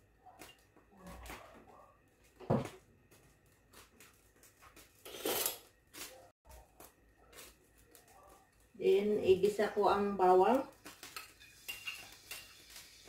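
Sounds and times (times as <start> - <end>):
objects knocking and clattering: 0.4 - 3.2.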